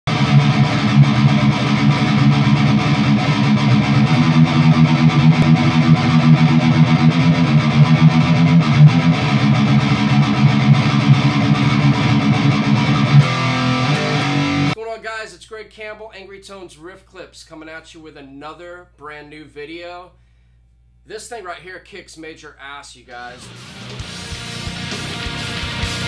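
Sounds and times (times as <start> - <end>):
distorted electric guitar riffing: 0.0 - 14.8, 23.3 - 26.0.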